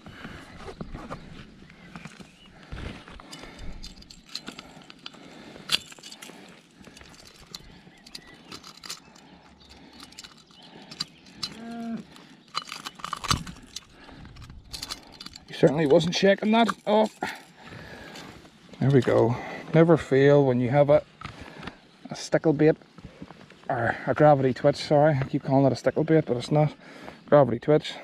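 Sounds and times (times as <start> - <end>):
fish handling clicks and rustles: 0.2 - 19.5.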